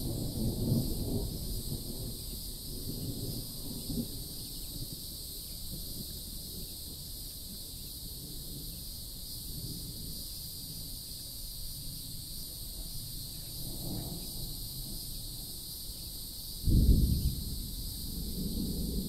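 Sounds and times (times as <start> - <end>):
high insect drone: 0.0 - 19.0
wind rumble on microphone: 0.0 - 19.0.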